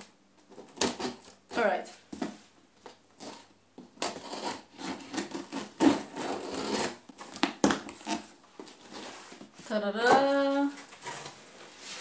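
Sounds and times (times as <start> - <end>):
scissor blade slitting packing tape: 3.2 - 8.3.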